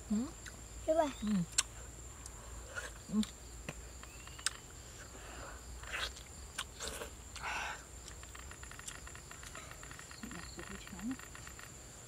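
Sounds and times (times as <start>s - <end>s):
wet mouth smacks and chewing: 1.5s - 1.7s, 5.8s - 9.6s
high-pitched insect drone: 7.6s - 12.0s.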